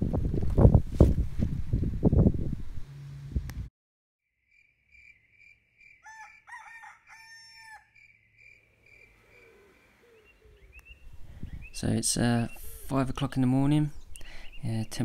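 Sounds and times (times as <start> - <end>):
rooster crowing: 5.8 - 8.1, 9.0 - 10.6.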